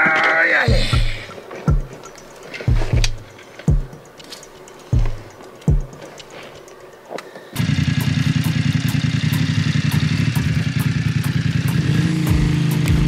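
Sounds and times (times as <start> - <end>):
motorcycle engine idling: 7.5 - 13.0.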